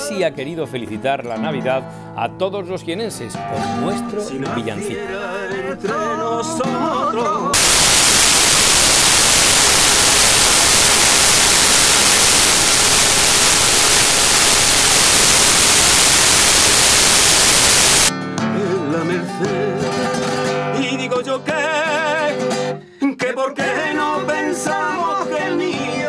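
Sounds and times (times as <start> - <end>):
flamenco singing with guitar: 3.8 - 7.5, 18.4 - 26.0
loud static hiss: 7.6 - 18.1.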